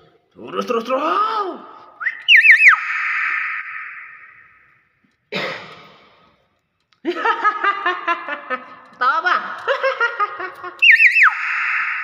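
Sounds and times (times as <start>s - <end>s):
bird whistling call: 2.0s - 4.6s, 10.8s - 12.0s.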